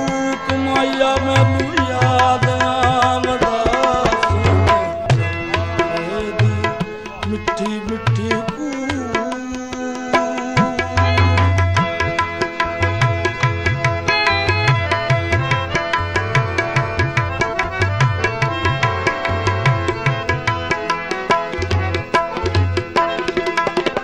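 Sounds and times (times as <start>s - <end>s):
hand drum rhythm: 0.0s - 24.0s
sustained melodic instruments: 0.0s - 24.0s.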